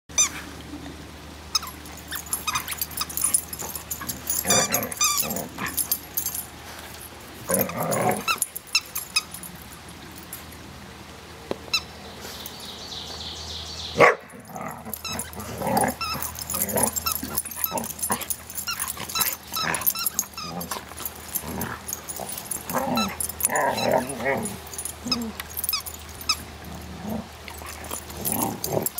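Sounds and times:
dogs growling and barking: 0:01.6 - 0:09.4, 0:14.0 - 0:28.9.

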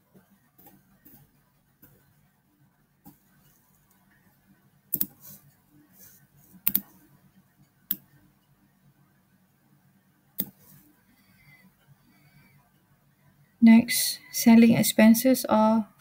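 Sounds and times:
faint low hum: 0:00.0 - 0:16.0
computer mouse clicking: 0:04.9 - 0:05.3, 0:06.5 - 0:07.0, 0:07.9 - 0:08.1, 0:10.4 - 0:10.8.

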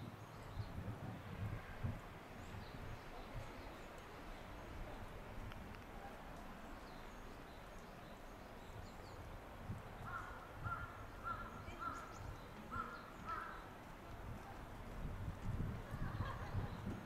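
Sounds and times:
small birds chirping: 0:02.4 - 0:05.2, 0:06.6 - 0:13.9
crow cawing: 0:10.1 - 0:12.0, 0:12.7 - 0:13.6.

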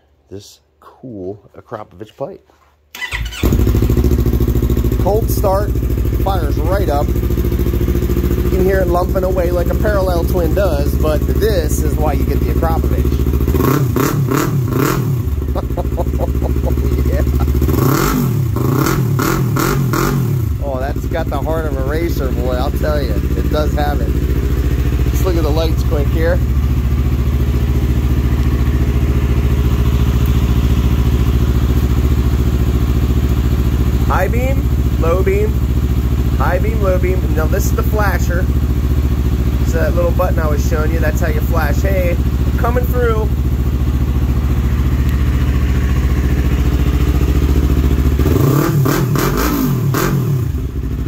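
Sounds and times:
motorcycle engine idling: 0:03.0 - 0:51.0.

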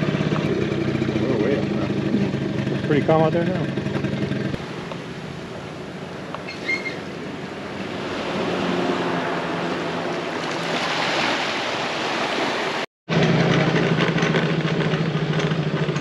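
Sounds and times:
motor scooter engine running: 0:00.0 - 0:04.6, 0:13.1 - 0:16.0
small waves washing onto beach: 0:07.1 - 0:12.9.

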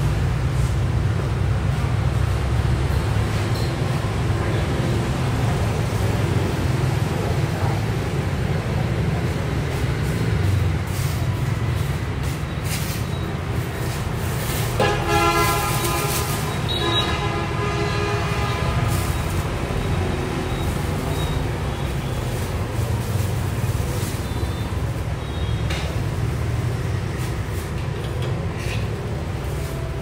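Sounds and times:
vehicle horn: 0:14.8 - 0:19.3.

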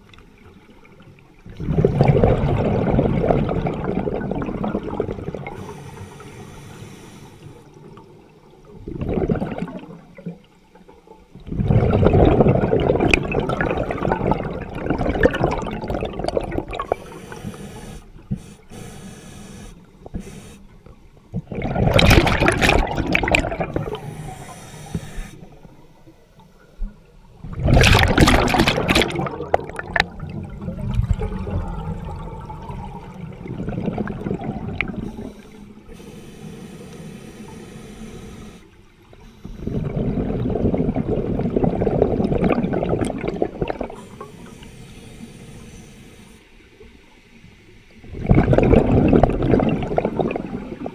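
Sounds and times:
bubbling exhalation: 0:01.5 - 0:05.6, 0:08.9 - 0:10.0, 0:11.5 - 0:17.1, 0:21.4 - 0:24.2, 0:27.5 - 0:35.3, 0:39.7 - 0:44.1, 0:48.1 - 0:50.9
diver breathing through a regulator: 0:05.4 - 0:07.8, 0:16.7 - 0:20.9, 0:23.5 - 0:25.8, 0:34.4 - 0:40.4, 0:43.7 - 0:46.6.

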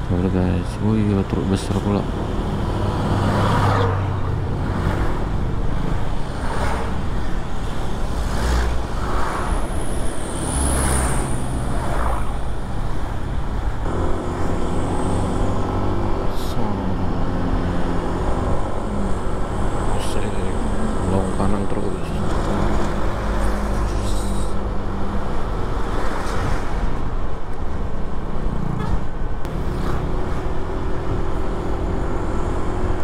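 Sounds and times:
road and traffic noise: 0:00.0 - 0:33.0.

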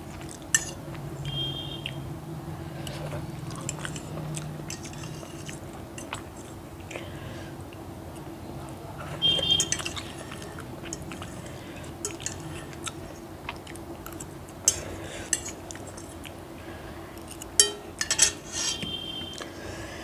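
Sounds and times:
metal fork scraping a plate: 0:04.7 - 0:06.1, 0:09.3 - 0:11.4, 0:12.0 - 0:12.8, 0:17.6 - 0:19.2.

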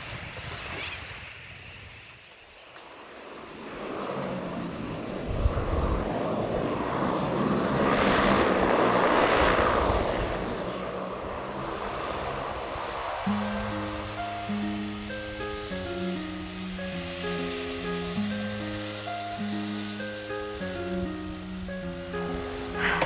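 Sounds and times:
plane engine and propeller: 0:02.0 - 0:23.0
faint high whine: 0:02.1 - 0:23.0
music: 0:12.8 - 0:23.0.

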